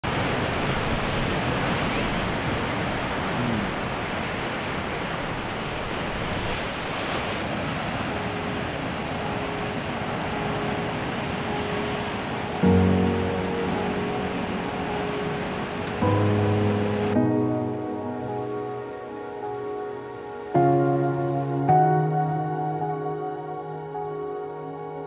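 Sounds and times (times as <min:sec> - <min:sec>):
waves breaking on rocky shore: 0:00.0 - 0:16.0.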